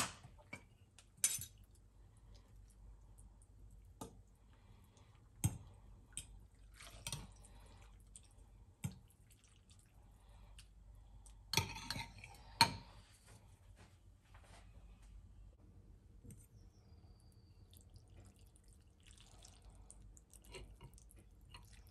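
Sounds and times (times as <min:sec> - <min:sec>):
cutlery clinking on ceramic bowl: 0:01.2 - 0:01.6, 0:11.5 - 0:12.8.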